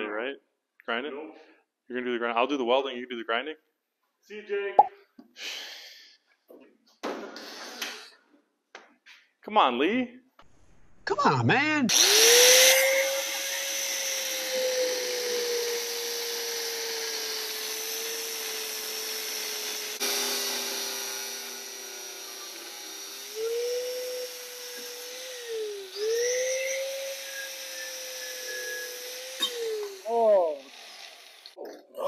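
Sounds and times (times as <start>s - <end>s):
angle grinder cutting metal: 11.9s - 31.6s.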